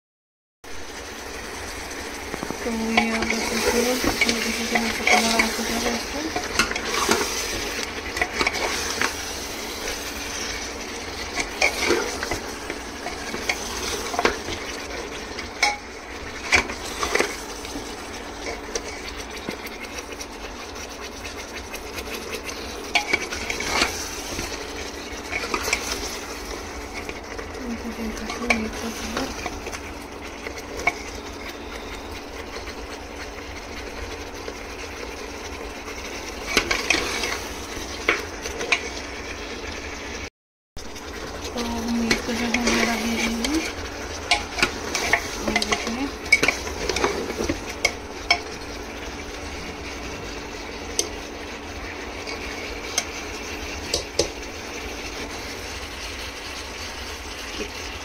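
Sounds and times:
meat sizzling in oil: 0.7s - 58.0s
spoon scraping and knocking pot: 22.0s - 24.6s, 42.0s - 48.6s.

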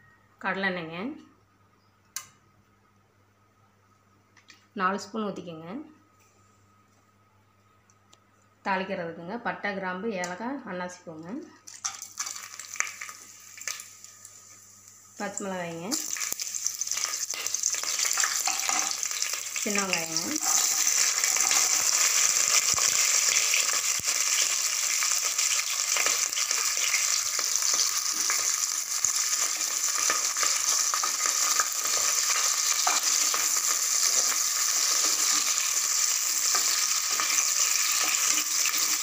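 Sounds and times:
shallots sizzling in hot oil: 11.7s - 39.0s.

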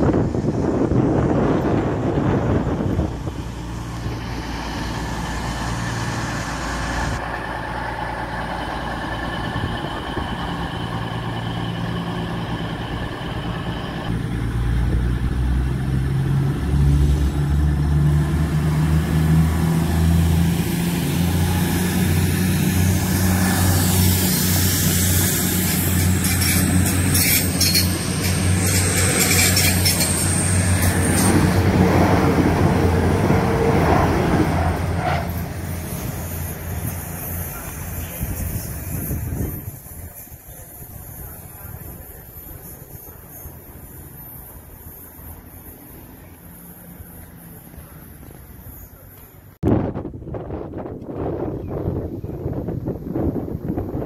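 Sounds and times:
diesel train engines droning: 0.0s - 54.0s
wheels on rails: 21.5s - 49.6s.

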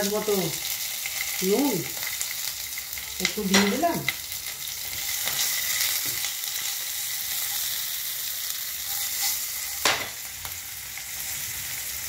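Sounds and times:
food sizzling in hot oil: 0.0s - 12.0s
spatula stirring in pan: 8.8s - 10.0s.

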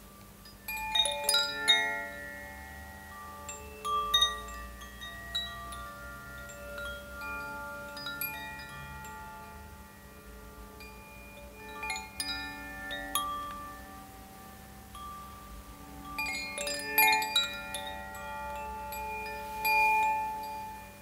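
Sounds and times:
chimes ringing: 0.0s - 21.0s
faint low hum: 0.0s - 21.0s.

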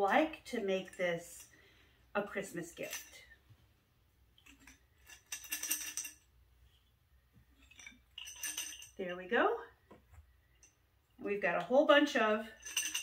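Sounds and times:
sticks clinking in glass bottle: 7.6s - 9.0s, 12.6s - 13.0s.

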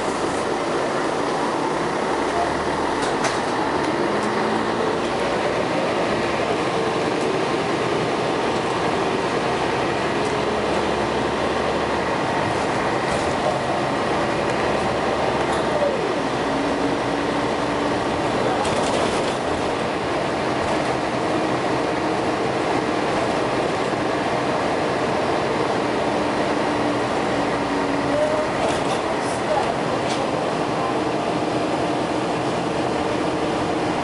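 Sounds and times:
road and body noise: 0.0s - 26.0s
bus diesel engine running: 0.0s - 34.0s.

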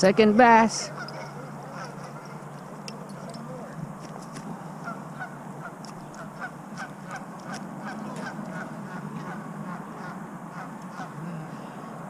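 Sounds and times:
goose honking: 0.7s - 2.5s, 4.8s - 11.6s.

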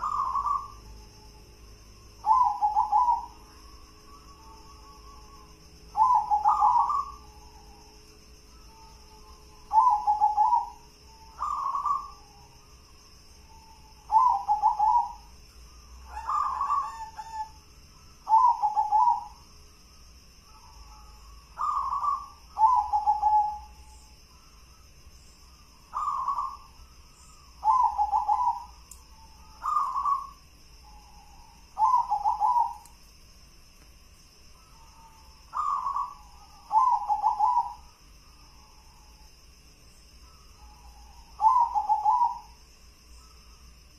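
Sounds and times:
dove cooing: 0.0s - 1.0s, 2.2s - 7.8s, 8.5s - 12.5s, 13.5s - 15.3s, 16.0s - 17.6s, 18.2s - 19.4s, 20.5s - 24.0s, 25.9s - 26.8s, 27.6s - 32.9s, 34.6s - 37.9s, 40.6s - 42.6s.

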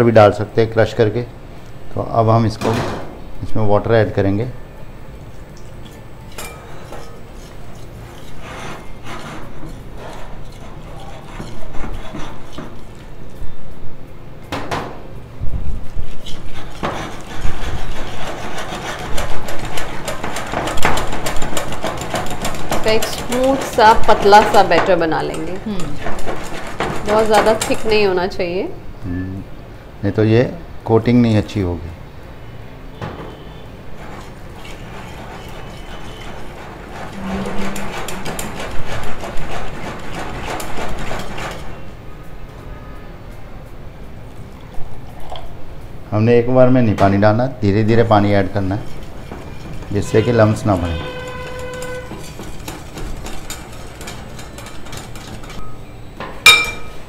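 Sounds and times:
whisk rattling in glass bowl: 16.5s - 28.1s, 34.0s - 41.8s, 48.3s - 55.6s.

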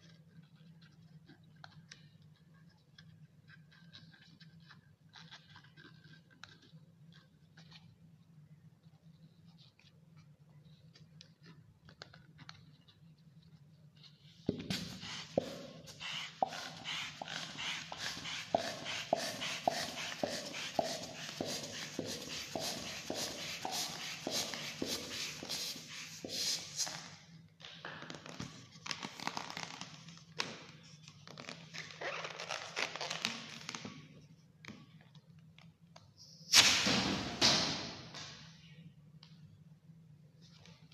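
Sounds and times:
hand pump strokes: 14.7s - 26.4s
stretching rubber squeaks: 31.2s - 33.7s.

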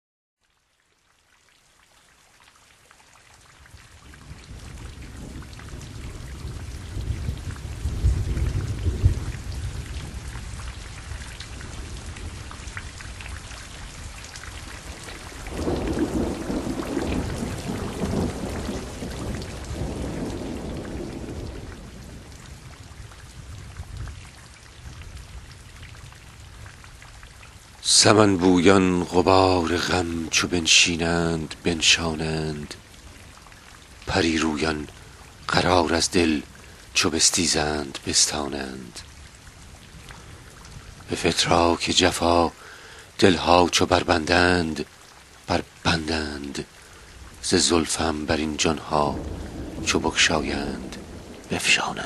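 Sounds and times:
steady rain: 0.4s - 52.0s
rolling thunder: 4.0s - 26.4s, 48.6s - 52.0s.

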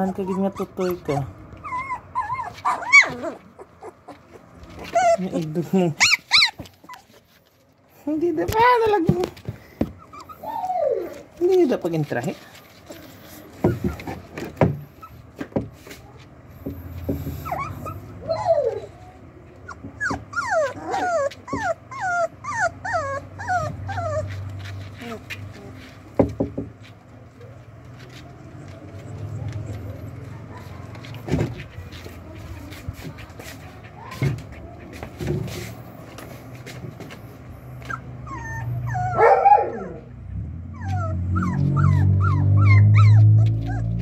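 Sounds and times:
puppy whimpering: 0.0s - 7.2s, 8.5s - 12.2s, 12.8s - 15.2s, 17.2s - 25.8s, 28.3s - 35.2s, 37.7s - 44.0s.

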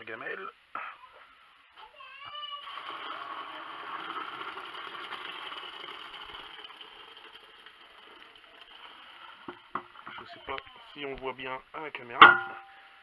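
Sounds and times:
water pouring into plastic bucket: 2.6s - 10.4s.

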